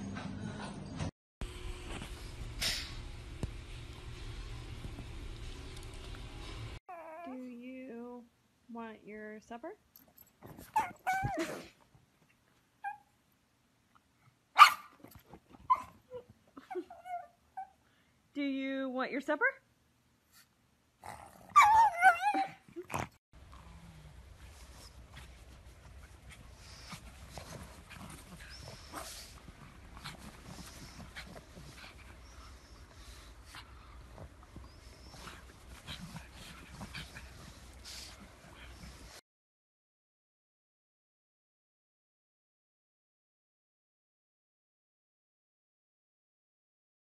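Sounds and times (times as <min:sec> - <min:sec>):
steady low hum: 0:00.2 - 0:06.8
dog whining: 0:06.9 - 0:07.5, 0:10.6 - 0:11.7, 0:21.4 - 0:22.9
dog high squeaks: 0:10.6 - 0:11.5
dog barking: 0:14.6 - 0:14.9.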